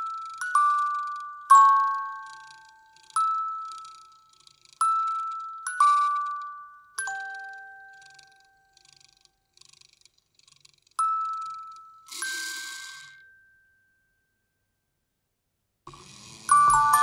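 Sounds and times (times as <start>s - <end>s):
lullaby on bell-like chimes: 0.0s - 8.8s, 11.0s - 14.9s, 16.2s - 17.0s.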